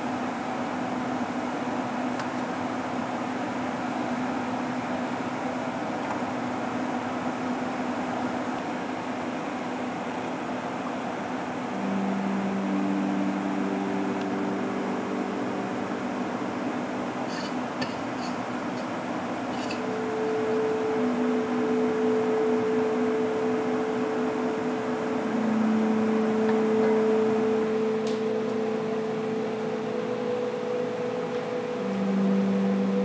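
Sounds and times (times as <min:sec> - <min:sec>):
mechanical hum with hiss: 0:00.0 - 0:33.0
deeper steady tone: 0:06.6 - 0:33.0.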